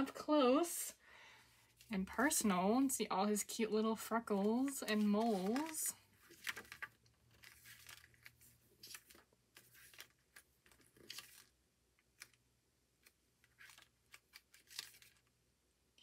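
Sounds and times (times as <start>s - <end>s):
paper rustling: 1.6s - 2.5s, 4.2s - 12.4s, 13.0s - 15.3s.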